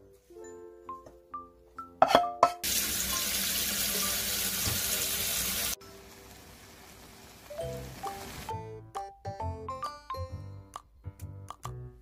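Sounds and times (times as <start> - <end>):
soft background music: 0.0 - 12.0
tap water running into metal bowl: 2.6 - 5.8.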